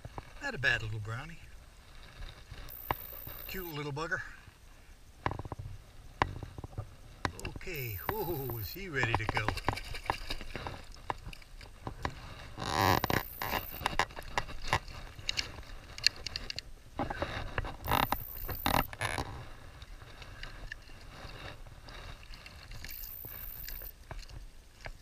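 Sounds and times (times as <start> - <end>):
creek water splashing: 7.4 - 25.0
net swishing through water: 19.5 - 24.4.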